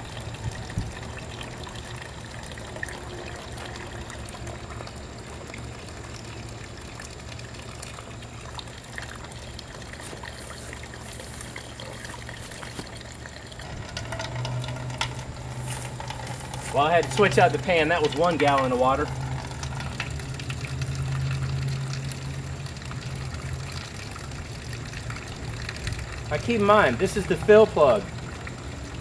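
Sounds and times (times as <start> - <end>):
water splashing into metal pan: 7.1 - 29.0.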